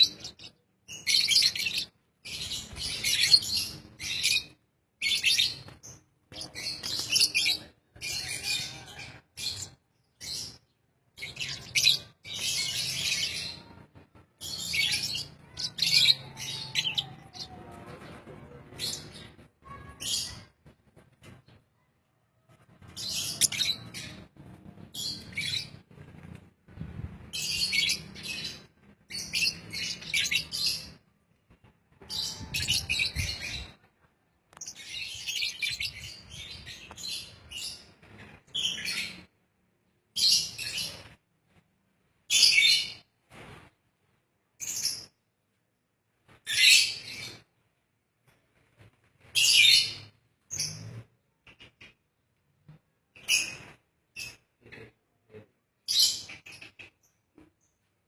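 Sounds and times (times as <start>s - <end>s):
birds chirping: 0.0s - 20.5s, 22.8s - 26.4s, 27.3s - 31.0s.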